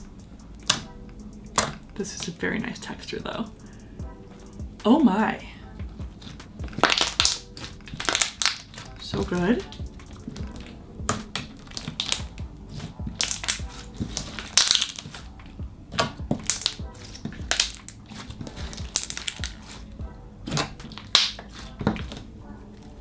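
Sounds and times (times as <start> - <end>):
slime squishing with sticky pops: 0.6 - 0.9, 1.5 - 2.3, 6.0 - 19.8, 20.4 - 22.3.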